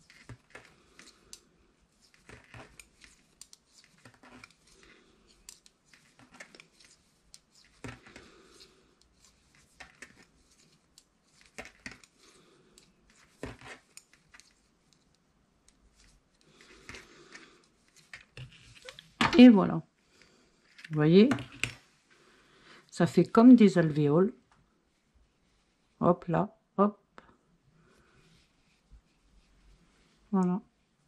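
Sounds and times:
knitting needles clicking: 0.0s - 8.3s, 9.0s - 13.3s.

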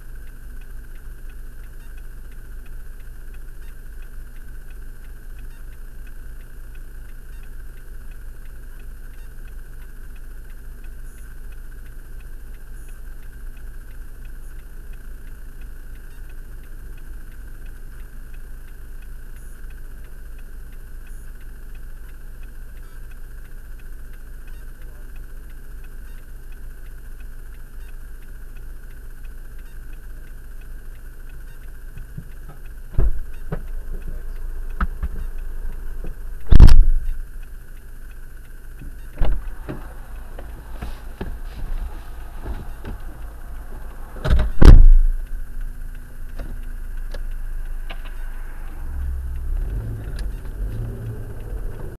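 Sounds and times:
car engine idling: 29.0s - 52.0s
sharp thumps and knocks: 36.0s - 37.2s, 38.8s - 45.4s.

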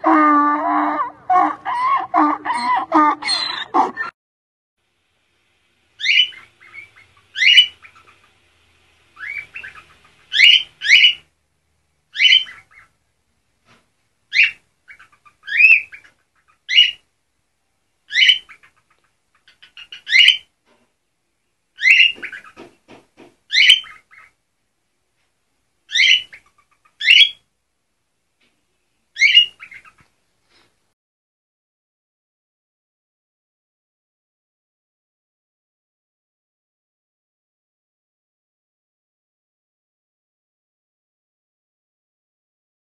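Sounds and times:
cockatoo giving harsh calls: 0.0s - 4.1s, 6.0s - 8.4s, 9.2s - 11.3s, 12.1s - 12.9s, 14.3s - 17.0s, 18.1s - 20.5s, 23.5s - 24.4s, 25.9s - 27.4s, 29.2s - 30.0s.

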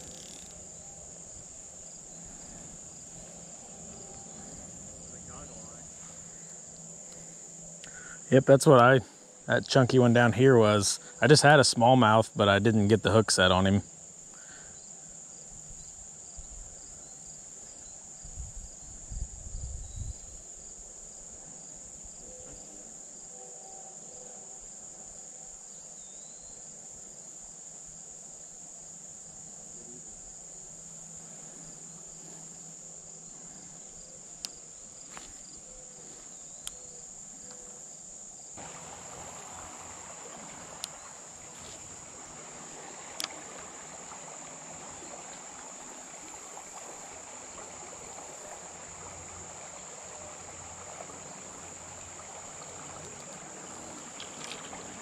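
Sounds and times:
soft rushing hiss: 0.0s - 23.2s, 24.6s - 55.0s
high-pitched insect chorus: 0.0s - 55.0s.

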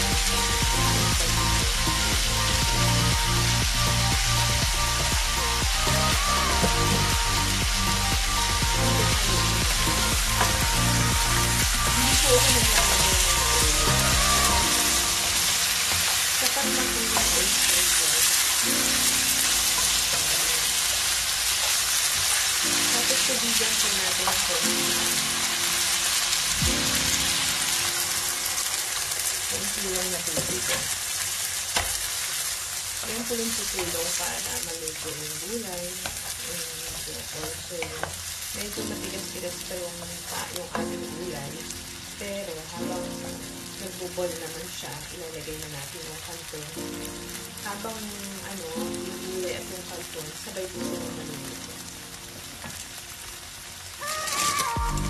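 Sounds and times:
vegetables and chicken sizzling in pan: 0.0s - 55.0s
wooden spatula stirring: 8.9s - 18.4s.

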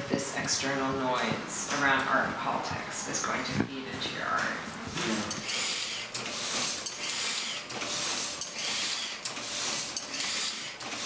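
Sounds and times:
printing press clicking and whooshing: 5.3s - 11.0s.

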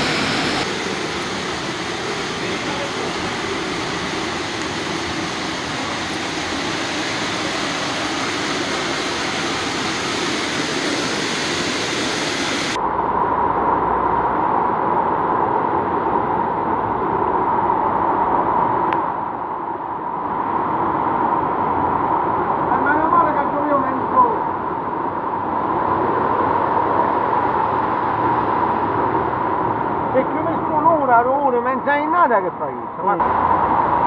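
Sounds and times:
floodwater gushing: 0.0s - 12.8s.

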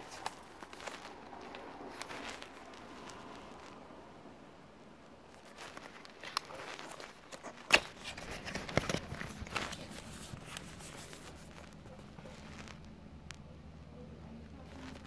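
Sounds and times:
cardboard flap snapping: 5.4s - 11.8s.

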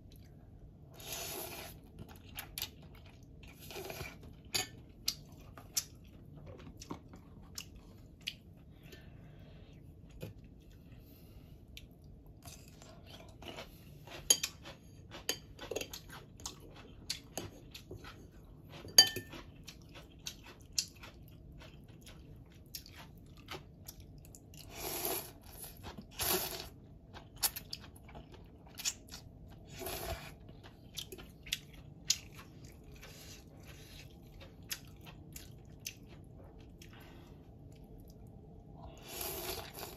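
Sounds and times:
slurping noodles: 1.0s - 1.9s, 24.6s - 26.7s, 38.9s - 39.9s
chewing: 1.5s - 9.1s, 9.8s - 24.7s, 25.3s - 39.9s
spoon and fork clicking on bowl: 18.9s - 19.3s.

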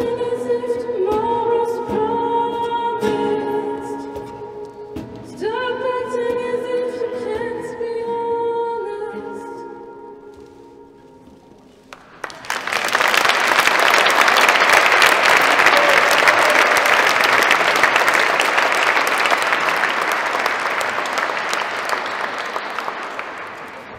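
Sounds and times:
audience applauding: 11.9s - 23.9s.

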